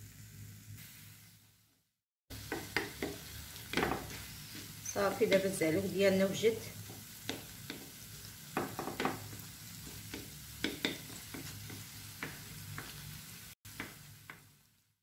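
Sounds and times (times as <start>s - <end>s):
quiet sizzle: 0.0s - 15.0s.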